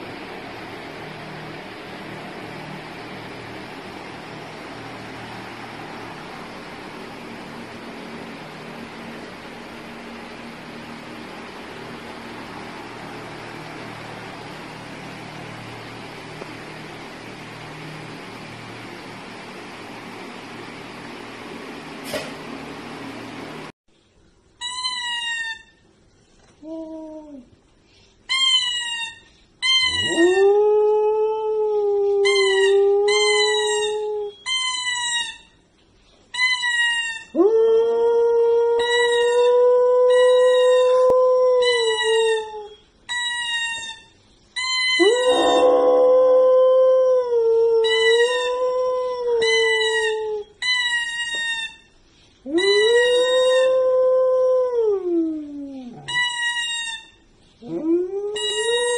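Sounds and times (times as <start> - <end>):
short high-pitched calls: 28.3 - 30.2
dog howling: 29.7 - 34.5, 37.3 - 42.8, 44.8 - 50.5, 52.5 - 56.2, 57.6 - 58.9.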